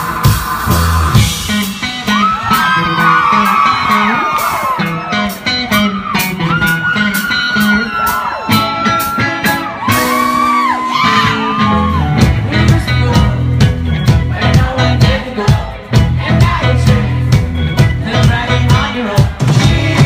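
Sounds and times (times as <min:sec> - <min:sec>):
bass guitar: 0:00.0 - 0:20.0
drums: 0:00.0 - 0:20.0
electric guitar: 0:00.0 - 0:20.0
person singing: 0:10.2 - 0:20.0.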